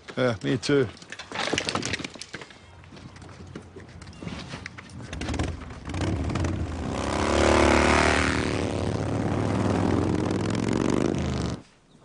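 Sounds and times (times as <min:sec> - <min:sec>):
motorcycle engines revving: 0:05.1 - 0:11.6.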